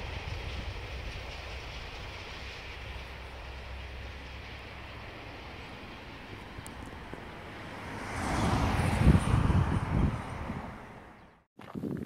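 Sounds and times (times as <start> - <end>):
diesel train rumble: 0.0 - 11.5.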